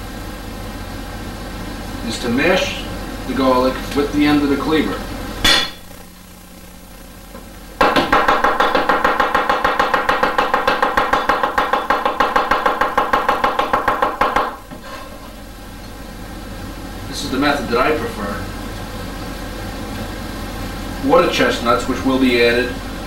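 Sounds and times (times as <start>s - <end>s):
cleaver chopping on wooden board: 7.8s - 14.6s.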